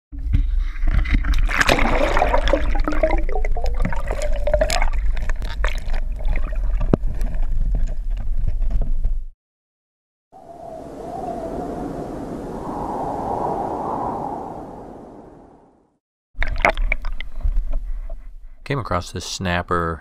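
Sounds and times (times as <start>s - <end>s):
underwater rumble and gurgling: 0.2s - 9.3s
rising tone: 10.4s - 16.0s
sharp underwater clicks and knocks: 16.4s - 17.8s.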